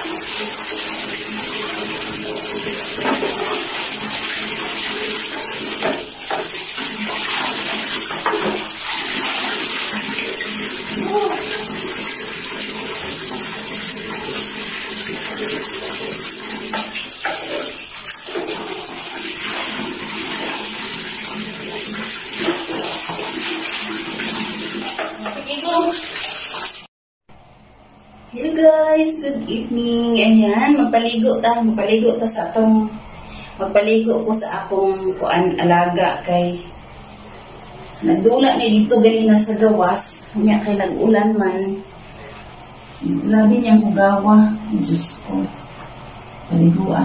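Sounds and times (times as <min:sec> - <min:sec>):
tap water running into bucket: 0:00.0 - 0:26.9.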